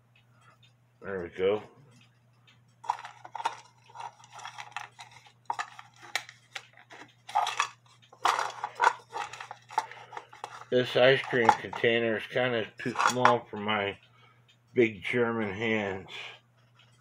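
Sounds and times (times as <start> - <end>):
low steady hum: 0.0 - 17.0
metal parts rattling in plastic container: 2.8 - 6.1, 7.3 - 11.8, 12.9 - 13.3.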